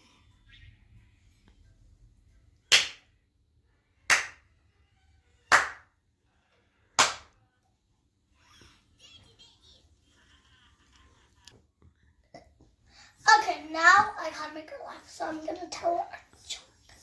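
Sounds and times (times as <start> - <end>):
child clapping hands: 2.7 - 3.0, 4.1 - 4.4, 5.5 - 5.9, 7.0 - 7.3.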